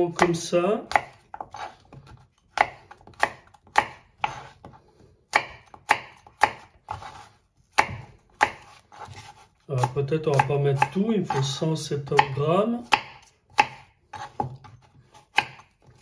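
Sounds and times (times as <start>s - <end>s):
knife chopping on cutting board: 0.1s - 16.0s.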